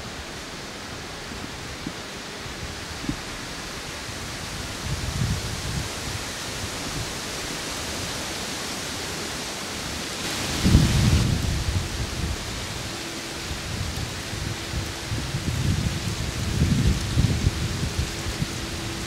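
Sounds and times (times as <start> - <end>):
wind gusting through treetops: 0.0 - 19.0
wind buffeting microphone: 1.4 - 7.2, 10.2 - 19.0.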